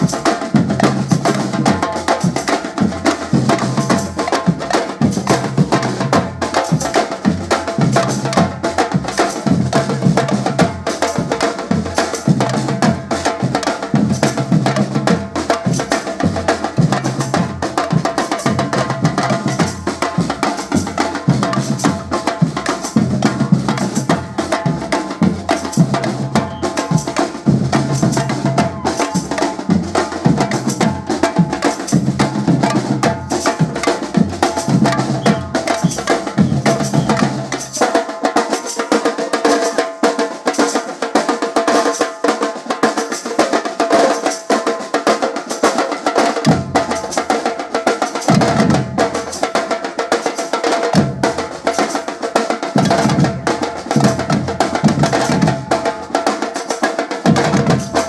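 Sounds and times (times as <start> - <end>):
bass drums: 0.0 - 37.8, 52.8 - 56.1, 57.2 - 58.0
snare drums: 0.0 - 58.0
shakers: 22.7 - 39.0.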